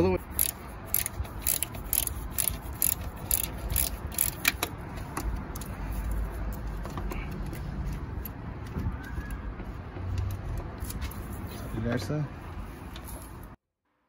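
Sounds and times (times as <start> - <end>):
ratchet wrench clicking: 0.3 - 6.6.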